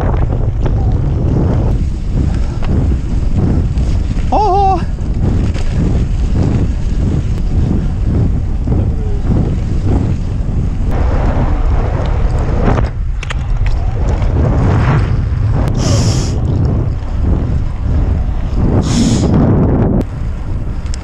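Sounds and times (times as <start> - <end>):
bike clicks and rattles: 0.0 - 10.9, 12.0 - 14.4, 20.1 - 21.0
bike tyres rumbling on gravel: 0.0 - 21.0
wind buffeting microphone: 0.0 - 21.0.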